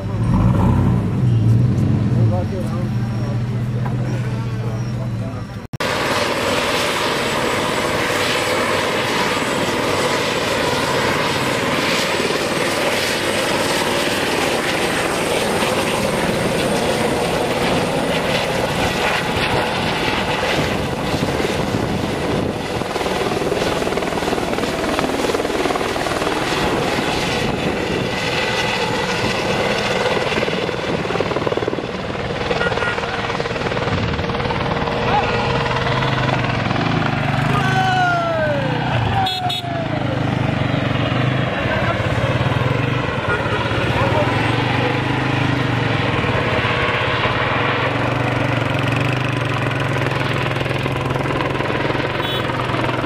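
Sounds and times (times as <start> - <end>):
helicopter rotor running: 2.2 - 53.0
high steady turbine whine: 2.3 - 53.0.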